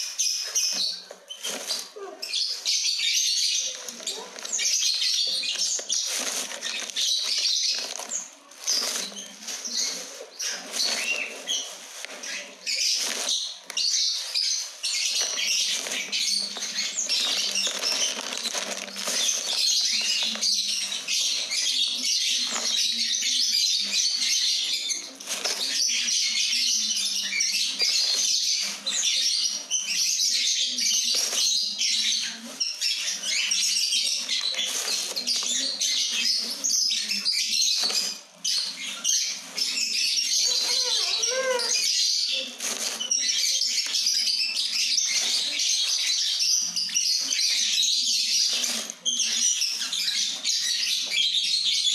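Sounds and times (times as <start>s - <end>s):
small birds chirping: 0.0s - 51.9s
plastic sack rustling: 0.5s - 3.0s, 3.6s - 23.3s, 24.9s - 26.1s, 33.6s - 47.7s, 48.4s - 50.0s.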